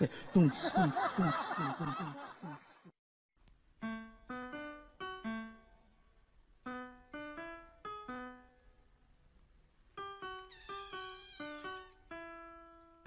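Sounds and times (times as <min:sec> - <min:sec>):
piano melody: 0:03.8 - 0:09.1, 0:09.9 - 0:13.0.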